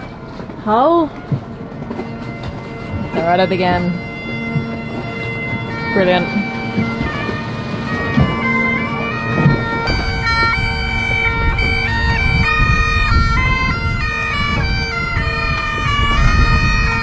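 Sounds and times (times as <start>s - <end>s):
bagpipes playing a tune: 0.0s - 17.0s.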